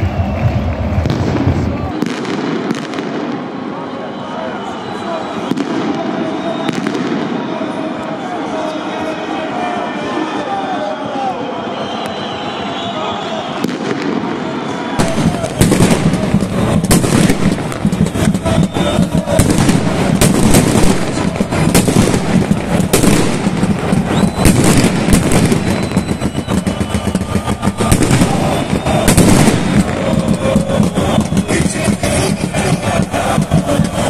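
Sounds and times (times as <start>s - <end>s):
firecrackers banging: 0.0s - 3.8s, 12.0s - 34.0s
loud crowd noise: 0.0s - 34.0s.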